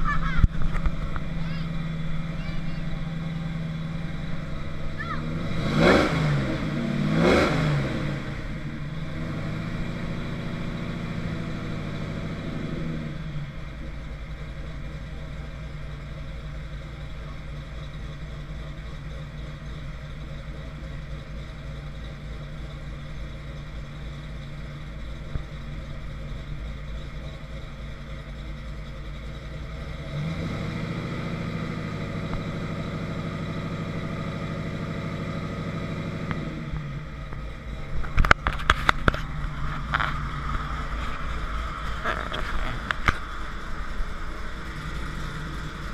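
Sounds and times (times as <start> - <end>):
car engine revving and idling: 0.0 - 45.9.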